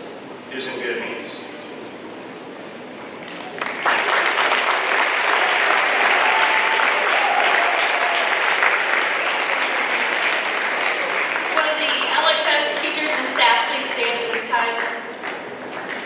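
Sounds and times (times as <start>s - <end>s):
audience applauding: 3.3s - 16.0s.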